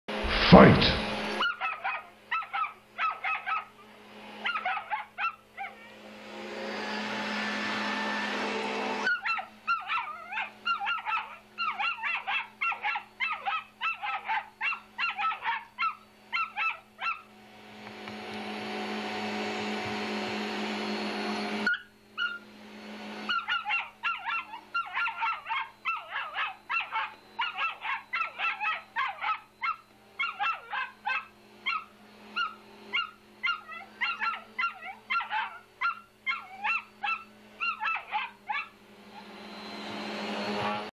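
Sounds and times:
dog barking rapidly: 1.4s - 3.8s, 4.4s - 5.9s, 9.1s - 17.3s, 21.7s - 22.4s, 23.3s - 38.7s.

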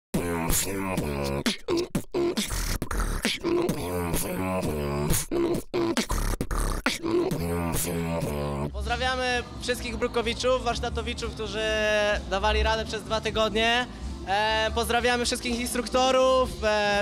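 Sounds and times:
beatbox hip-hop beat: 0.1s - 8.8s
pitched vocal line: 0.2s - 8.8s.

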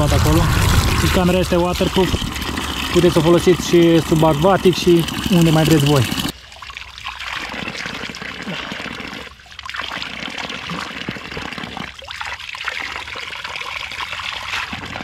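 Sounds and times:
water running and splashing: 0.0s - 8.8s.

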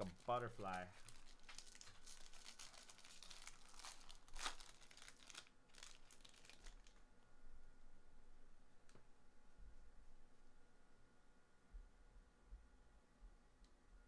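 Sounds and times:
wrapper crinkling and tearing: 0.0s - 7.1s.

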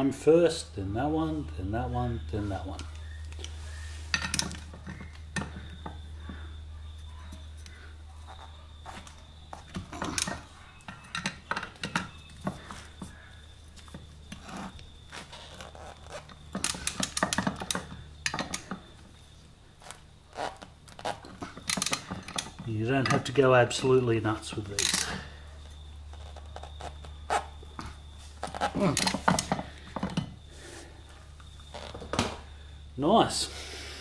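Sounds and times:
steel clinking: 21.2s - 25.5s.

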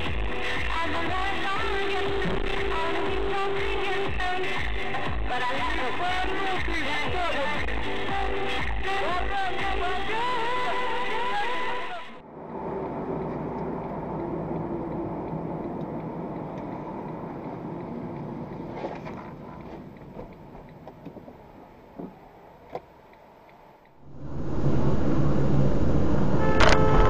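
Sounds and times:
background music: 0.0s - 12.2s
car road and engine noise: 12.2s - 27.0s.

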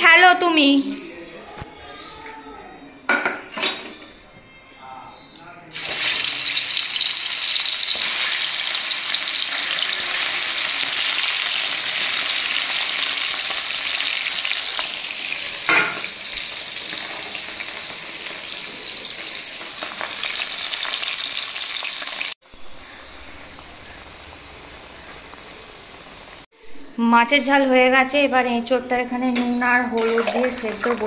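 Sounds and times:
fish sizzling in hot oil: 5.8s - 22.4s, 23.2s - 26.5s.

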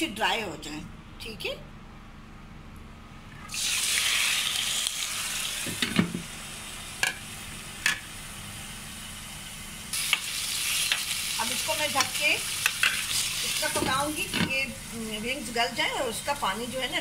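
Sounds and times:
chicken frying in hot oil: 3.5s - 17.0s.

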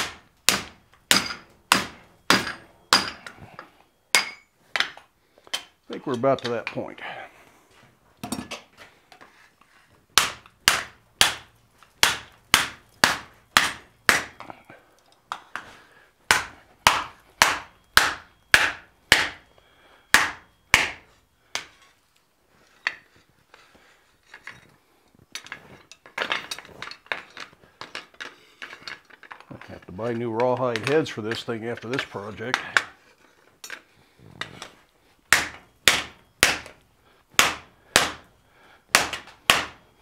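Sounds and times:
mallet striking steel on anvil: 0.0s - 3.4s, 4.1s - 5.0s, 10.2s - 14.4s, 16.3s - 19.4s, 20.1s - 21.7s, 35.3s - 36.8s, 37.4s - 38.2s, 38.9s - 39.8s
tools and metal clattering: 0.8s - 7.0s, 8.2s - 10.6s, 21.6s - 34.9s.

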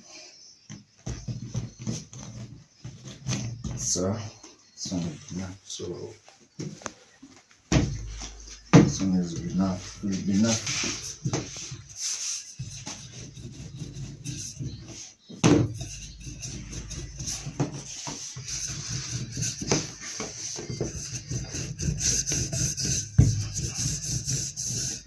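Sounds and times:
rolling pin rubbing rumble: 12.5s - 15.0s, 15.6s - 25.0s.

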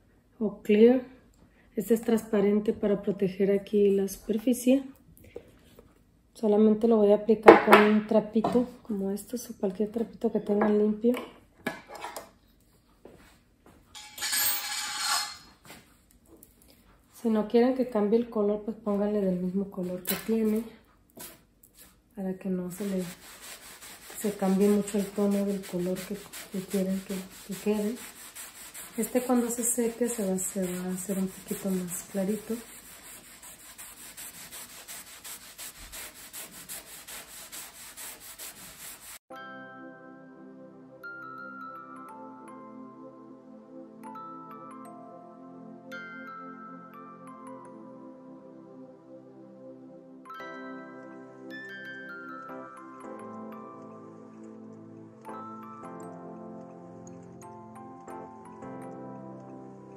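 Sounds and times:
cloth rag rubbing: 22.7s - 39.2s.

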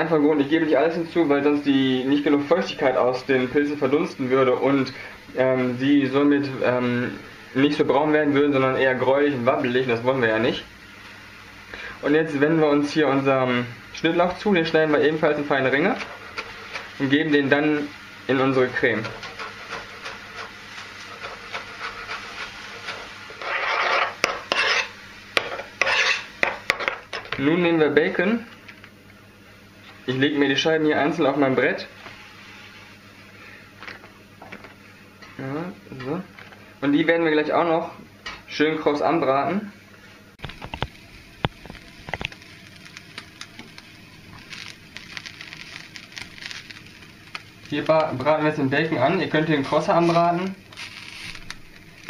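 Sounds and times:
bacon sizzling in a frying pan: 0.4s - 35.6s, 40.3s - 52.0s
knife blade scraping wood: 23.4s - 26.3s.

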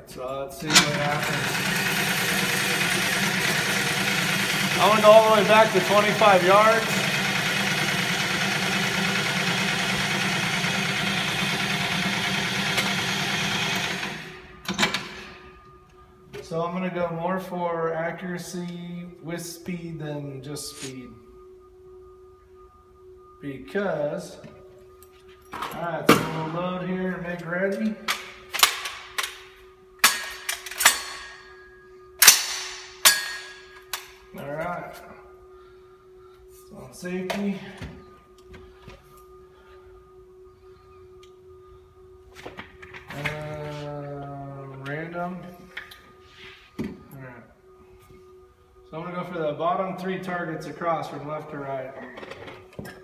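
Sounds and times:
faint steady hum: 13.8s - 53.0s
gunshots echoing indoors: 32.2s - 33.6s.

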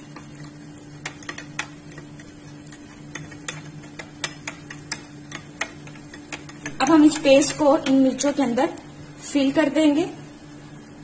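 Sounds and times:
metal spoon scraping a bowl: 0.0s - 7.9s
steady low hum: 0.0s - 11.0s.

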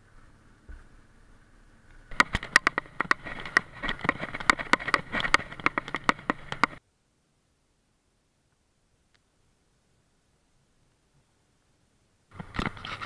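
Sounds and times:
motorcycle knocks and rattles: 2.1s - 6.8s.

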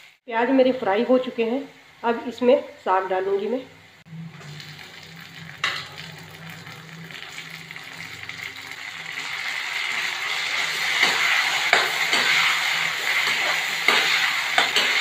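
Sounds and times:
food sizzling in a pan: 0.0s - 0.2s, 4.0s - 15.0s.

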